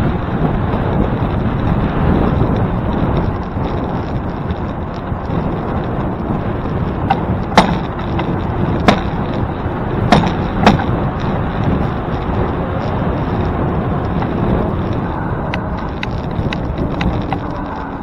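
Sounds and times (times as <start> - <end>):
wind rushing over microphone: 0.0 - 18.0
sharp knocks: 7.1 - 9.2, 10.1 - 10.9.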